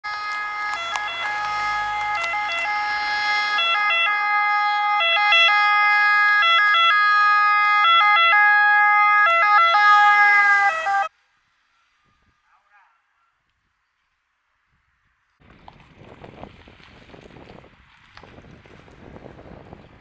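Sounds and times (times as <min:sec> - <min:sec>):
ambulance two-tone siren: 0:00.0 - 0:13.2.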